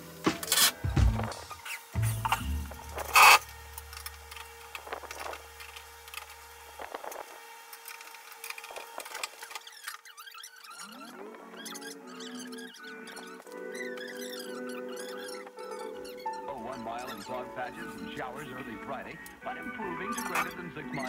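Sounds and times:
background music: 0:00.0 - 0:04.4, 0:10.9 - 0:21.0.

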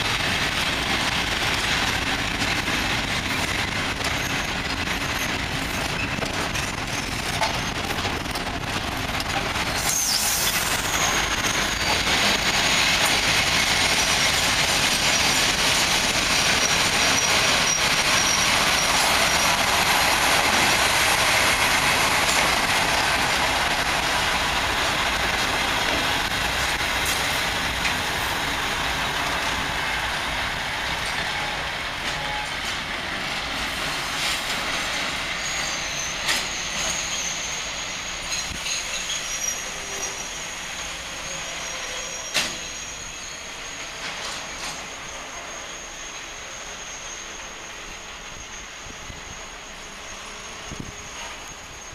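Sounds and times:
train wheels on rail: 0:00.0 - 0:51.9
high wheel squeal: 0:09.6 - 0:19.9, 0:34.9 - 0:51.9.

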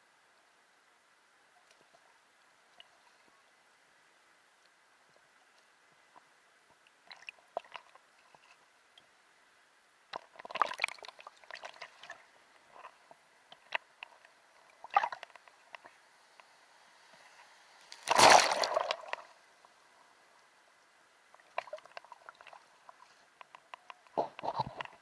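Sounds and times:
sea water splashing: 0:16.7 - 0:19.4.

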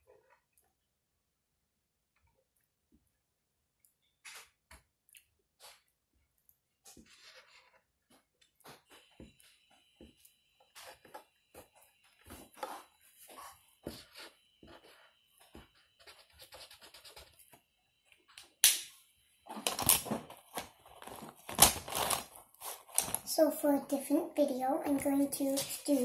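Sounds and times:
marker scratching on paper: 0:12.3 - 0:17.4.

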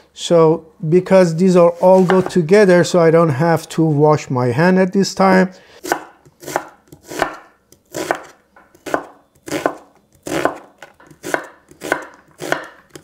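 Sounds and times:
knife chopping onion on wooden board: 0:05.8 - 0:13.0.

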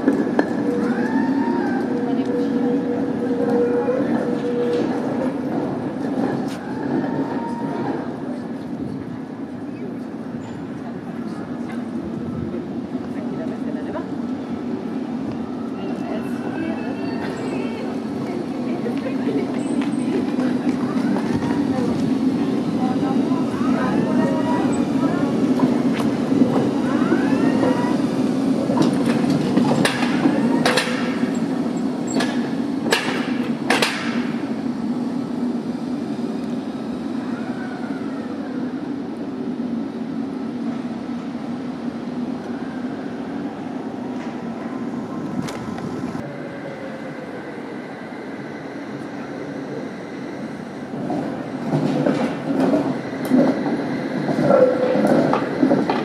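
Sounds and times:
tram wheel squeal: 0:00.0 - 0:08.6, 0:09.7 - 0:11.8, 0:15.2 - 0:39.0, 0:42.4 - 0:56.0
tram motors humming: 0:00.0 - 0:56.0
tram wheels knocking on rails: 0:28.4 - 0:34.6, 0:51.0 - 0:56.0.

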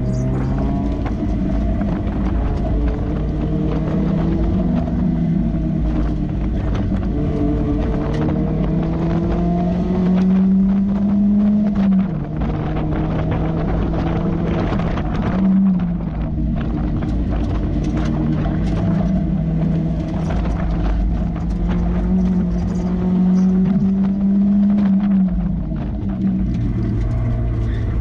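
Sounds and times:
car engine revving: 0:00.0 - 0:28.0
wind noise: 0:00.0 - 0:28.0.

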